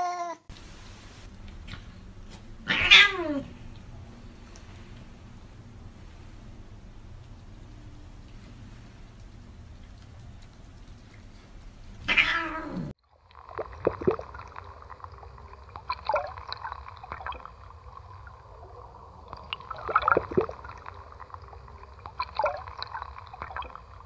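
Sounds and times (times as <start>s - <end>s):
water gurgling and trickling: 12.7s - 24.0s
water surges: 13.0s - 24.0s.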